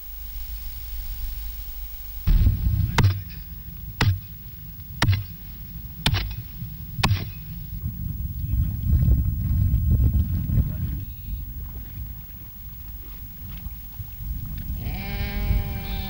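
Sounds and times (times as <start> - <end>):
low rumble: 2.2 - 14.8
hoe chopping into dry soil: 2.3 - 4.4, 5.0 - 5.4, 6.0 - 7.4.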